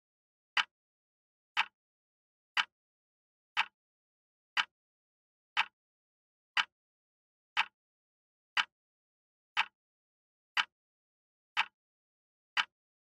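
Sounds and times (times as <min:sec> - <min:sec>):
timer ticks: 0:01.6 - 0:01.8, 0:02.5 - 0:02.8, 0:03.6 - 0:03.8, 0:04.5 - 0:04.8, 0:05.6 - 0:05.8, 0:06.6 - 0:06.8, 0:07.5 - 0:07.8, 0:08.6 - 0:08.8, 0:09.6 - 0:09.8, 0:10.6 - 0:10.8, 0:11.5 - 0:11.8, 0:12.5 - 0:12.8.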